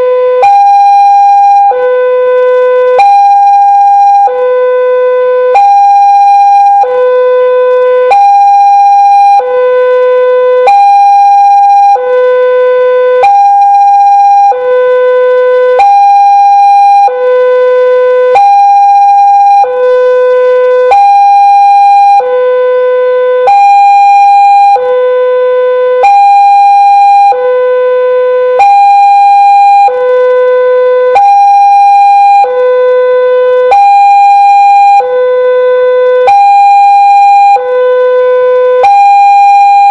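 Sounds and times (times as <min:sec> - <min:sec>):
level-crossing alarm alternating tones: 0:00.0 - 0:39.9.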